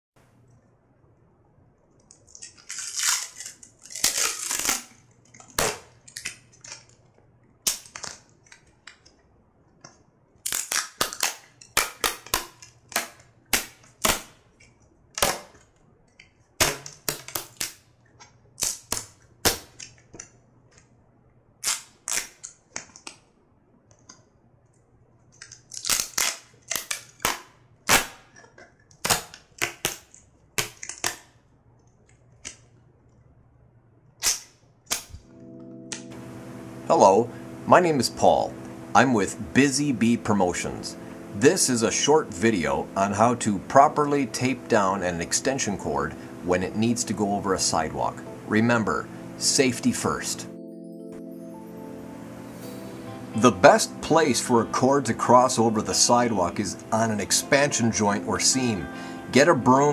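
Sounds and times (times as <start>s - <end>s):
duct tape ripping: 2.3s - 6.9s, 10.4s - 14.3s, 18.6s - 19.9s, 21.6s - 23.2s, 25.4s - 28.2s, 29.0s - 31.3s, 34.2s - 35.2s.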